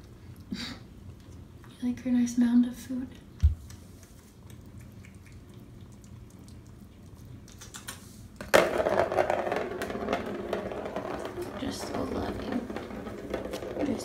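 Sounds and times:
kittens crunching kibble: 0:03.8 - 0:08.4
ball rattling around plastic track: 0:07.7 - 0:14.0.

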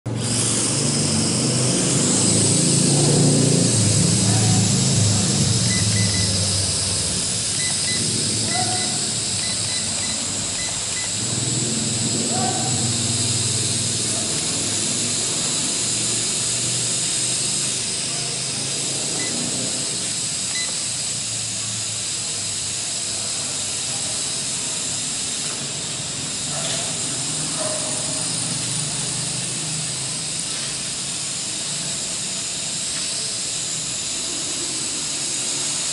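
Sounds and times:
quadcopter motors whining: 0:00.1 - 0:35.9.

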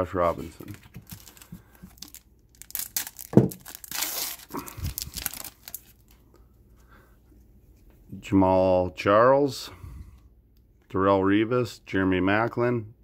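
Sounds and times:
foil wrapper tearing and crinkling: 0:00.6 - 0:06.1.

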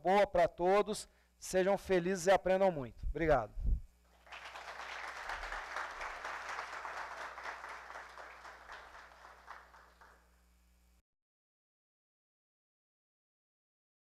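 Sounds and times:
audience applause: 0:04.2 - 0:10.2.

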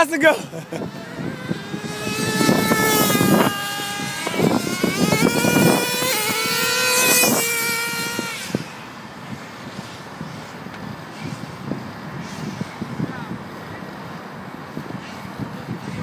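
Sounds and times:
small nitro engine revving: 0:00.6 - 0:09.9.

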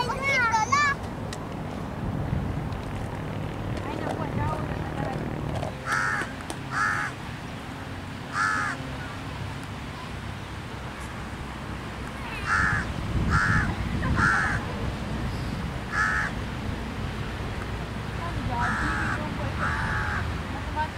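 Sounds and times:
crow cawing: 0:05.8 - 0:07.2, 0:08.3 - 0:08.8, 0:12.4 - 0:14.7, 0:15.9 - 0:16.4, 0:18.6 - 0:20.3.

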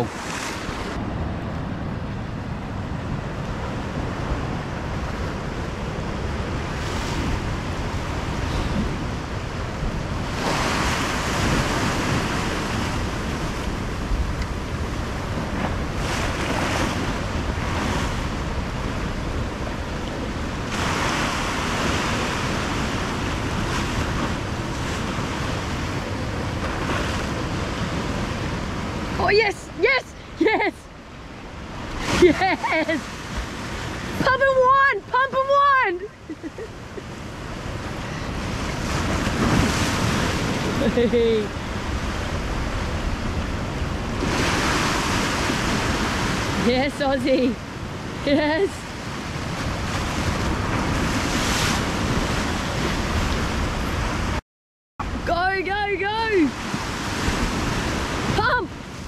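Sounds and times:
ocean swell washing over rocks: 0:00.0 - 0:30.3, 0:31.2 - 0:54.4
wind rumble on microphone: 0:00.0 - 0:54.4, 0:55.0 - 0:59.0.

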